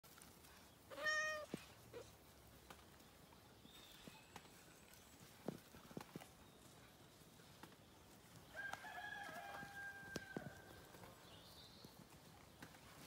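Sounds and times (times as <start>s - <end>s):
cat meowing: 0.9s - 1.6s.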